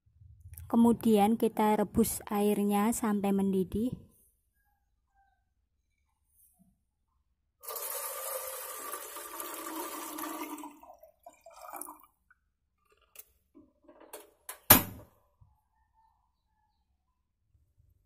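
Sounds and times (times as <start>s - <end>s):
water pouring into a metal pot: 7.6s - 12.2s.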